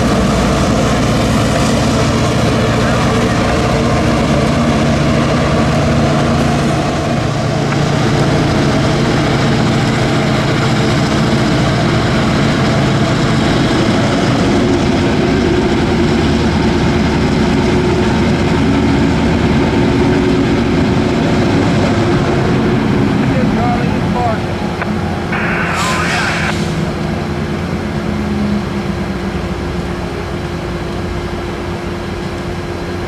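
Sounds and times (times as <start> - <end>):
diesel locomotive running hard: 0.0 - 33.0
higher-pitched hum: 23.1 - 27.2.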